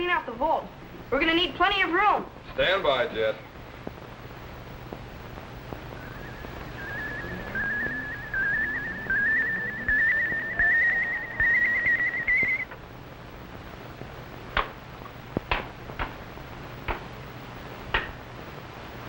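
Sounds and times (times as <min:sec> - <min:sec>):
low hiss: 0:00.0 - 0:19.0
warbling electronic whine: 0:05.8 - 0:12.8.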